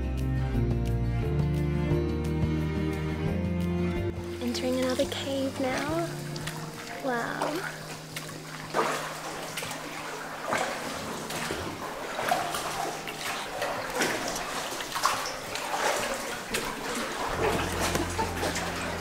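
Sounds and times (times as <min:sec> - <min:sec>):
oars splashing in water: 0:04.3 - 0:19.0.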